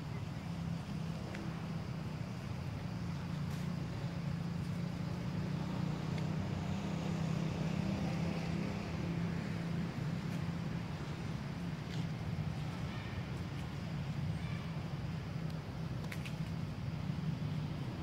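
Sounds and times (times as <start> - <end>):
low engine hum: 0.0 - 18.0
faint clicks: 15.4 - 16.6.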